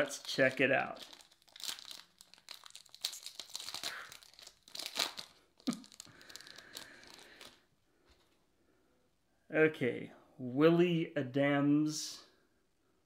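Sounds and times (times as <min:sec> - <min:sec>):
foil wrapper tearing and crinkling: 0:00.0 - 0:07.6.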